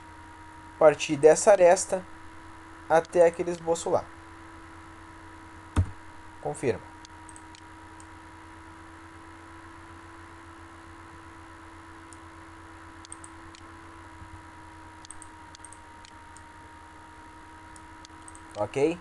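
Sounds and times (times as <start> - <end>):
steady electrical hum: 0.0 - 19.0.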